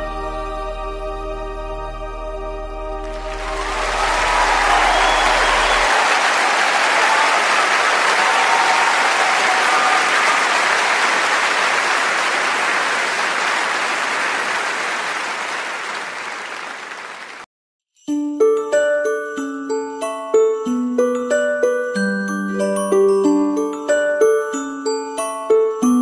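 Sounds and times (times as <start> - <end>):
audience applauding: 3.0 - 17.5.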